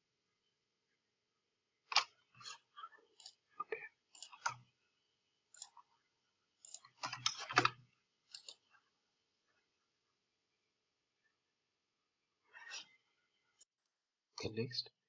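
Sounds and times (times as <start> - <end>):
mouse and keyboard clicks: 1.9 - 2.6, 3.2 - 4.6, 6.6 - 8.7.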